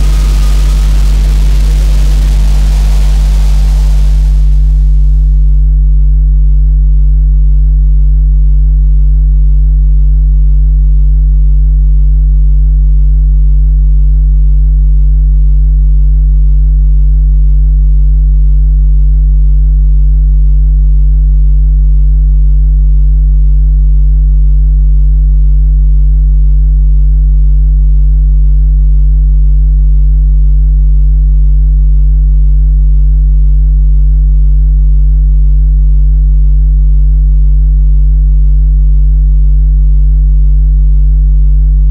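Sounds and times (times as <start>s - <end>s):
electronic noise drone: 0.0s - 5.7s.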